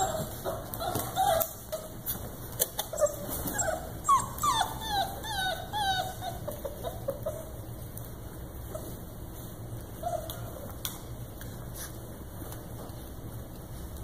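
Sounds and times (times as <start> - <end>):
puppies whimpering and whining: 0.0 - 10.8.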